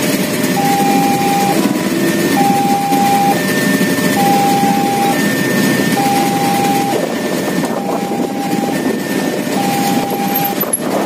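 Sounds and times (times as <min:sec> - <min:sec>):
motorcycle and car engines idling: 0:00.0 - 0:11.0
level crossing warning alarm: 0:00.3 - 0:11.0.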